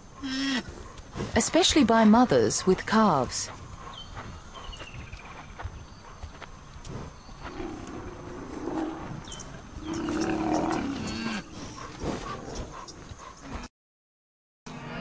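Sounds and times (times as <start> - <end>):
rhinoceros bellowing: 7.3 - 13.7.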